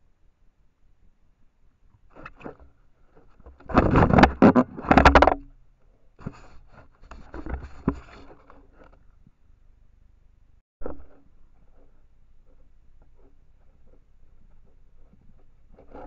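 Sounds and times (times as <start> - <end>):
camera scraping against pole: 3.5 - 5.4, 6.2 - 9.0.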